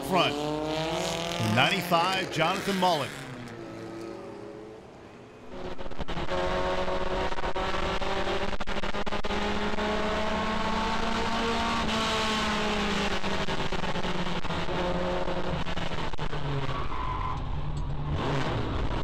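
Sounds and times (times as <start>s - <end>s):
truck engine droning: 0.0s - 3.6s.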